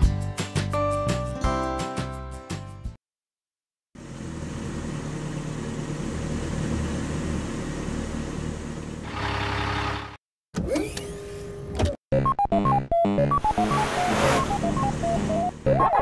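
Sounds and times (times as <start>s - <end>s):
car engine sound effect: 4.0s - 11.3s, 13.3s - 16.0s.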